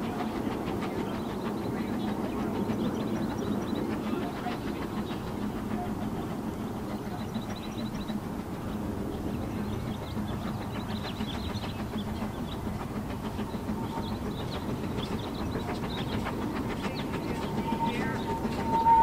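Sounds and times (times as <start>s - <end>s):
distant steam locomotive chuffing: 0.0s - 19.0s
steam whistle: 17.5s - 19.0s.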